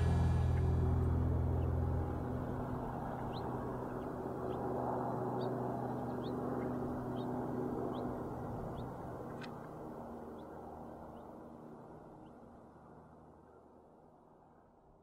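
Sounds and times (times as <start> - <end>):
gong-like low chord: 0.0 - 5.3.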